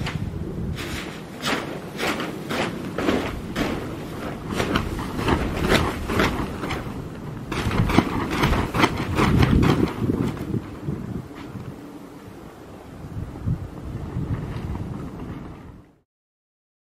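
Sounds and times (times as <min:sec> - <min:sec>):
plastic sheeting flapping and crackling: 0:00.0 - 0:11.8
wind buffeting microphone: 0:00.0 - 0:16.0.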